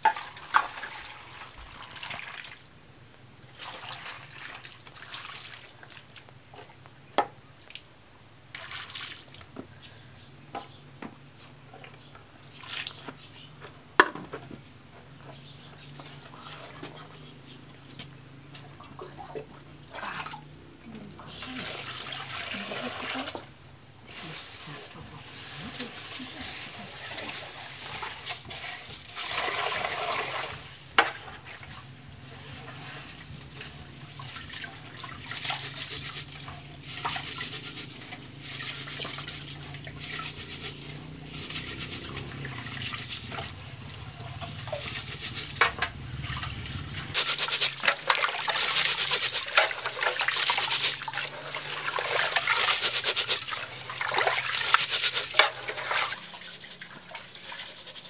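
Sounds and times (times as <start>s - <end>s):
water pouring from a jug: 0.0s - 2.7s, 3.5s - 6.3s, 8.5s - 9.5s, 21.3s - 23.4s, 25.2s - 31.8s, 32.4s - 58.0s
hands swishing rice in water: 24.1s - 43.5s, 47.1s - 58.0s
water splashing: 24.1s - 58.0s.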